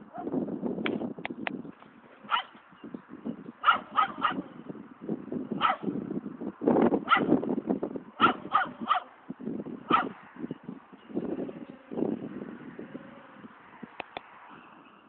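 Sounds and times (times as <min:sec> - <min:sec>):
dog barking: 0:00.1 - 0:00.3, 0:02.3 - 0:02.6, 0:03.6 - 0:04.5, 0:05.6 - 0:05.9, 0:07.0 - 0:07.3, 0:08.2 - 0:09.1, 0:09.9 - 0:10.2.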